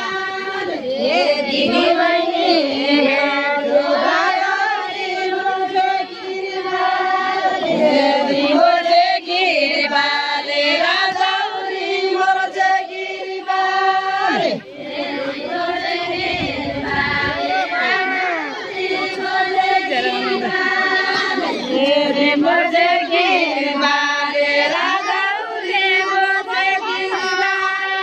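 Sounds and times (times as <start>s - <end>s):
women singing in unison: 0.0s - 28.0s.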